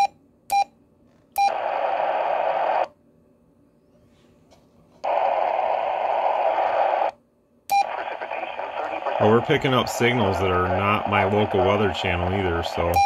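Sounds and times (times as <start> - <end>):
radio receiver static: 1.5 - 2.9, 5.0 - 13.0.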